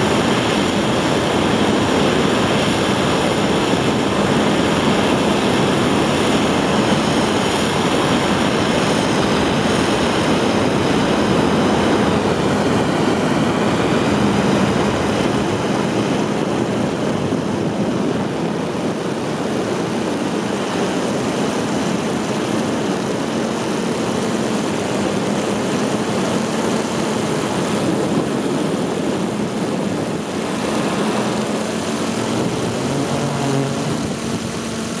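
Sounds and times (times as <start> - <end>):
rocket engine roaring: 26.4 - 35.0.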